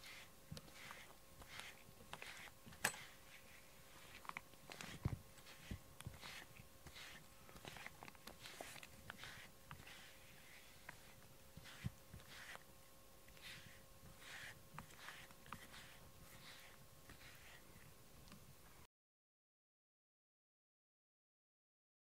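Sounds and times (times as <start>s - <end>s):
brush swishing through fur: 0.0s - 12.7s, 13.3s - 18.0s.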